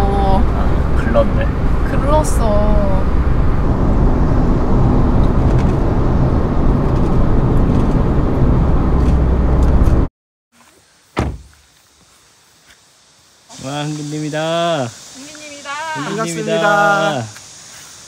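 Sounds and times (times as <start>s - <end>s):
car road and engine rumble: 0.0s - 10.1s
thump: 11.1s - 11.6s.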